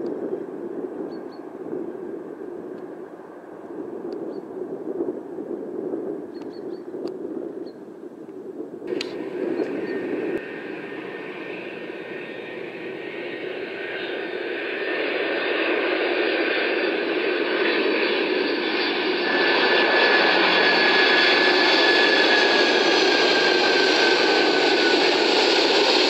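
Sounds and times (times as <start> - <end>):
high jet engine whine: 8.4 - 26.0
jet engines roaring: 8.9 - 26.0.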